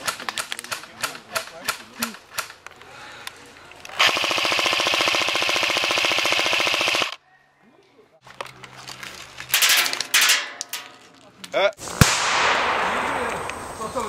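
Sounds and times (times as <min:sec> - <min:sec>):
airsoft machine gun rattling: 0:03.9 - 0:07.2.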